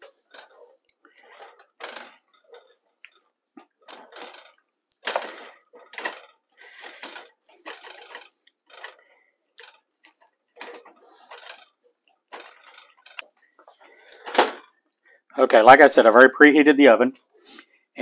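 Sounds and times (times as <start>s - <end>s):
wooden spoon scraping a skillet: 5.3s - 14.3s.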